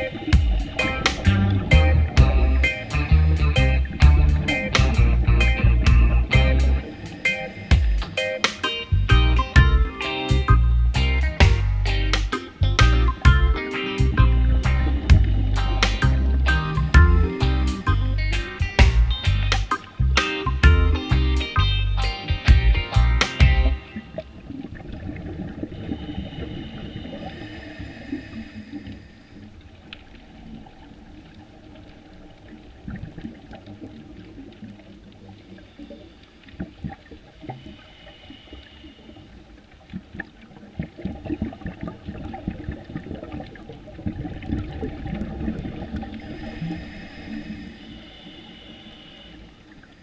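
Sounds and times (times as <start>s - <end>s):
underwater clicks: 0.0s - 9.5s, 11.3s - 20.7s, 39.9s - 47.9s
low rumbling underwater wash: 0.0s - 50.0s.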